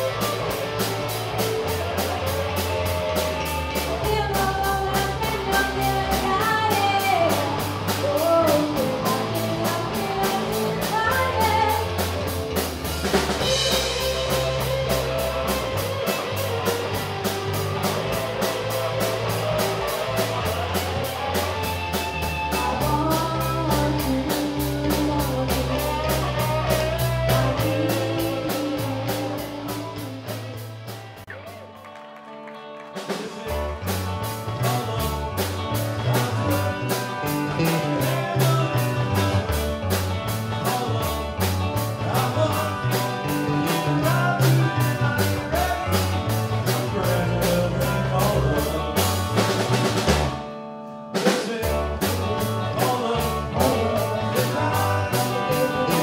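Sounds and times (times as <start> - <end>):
man singing lead vocal: 0.0 - 12.1, 22.4 - 30.8, 33.0 - 49.9, 51.2 - 56.0
live rock band playing: 0.0 - 56.0.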